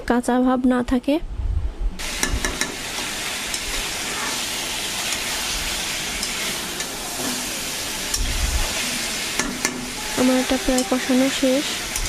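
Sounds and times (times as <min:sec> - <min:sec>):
food sizzling in oil: 0:02.0 - 0:12.0
metal spatula clicking on pan: 0:09.4 - 0:09.9.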